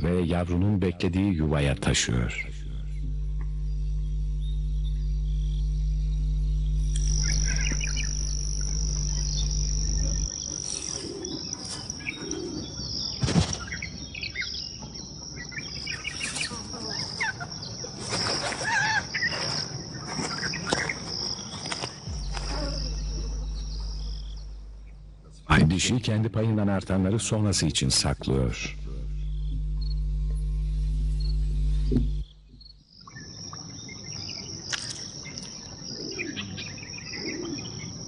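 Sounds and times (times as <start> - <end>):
low steady drone: 0.0 - 12.2, 22.1 - 26.5, 27.2 - 32.6
high insect trill: 1.1 - 38.0.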